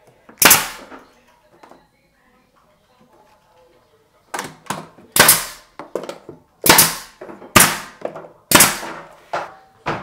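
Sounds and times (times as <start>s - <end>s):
nail gun firing: 0.4s - 0.9s, 5.2s - 5.7s, 6.6s - 9.0s.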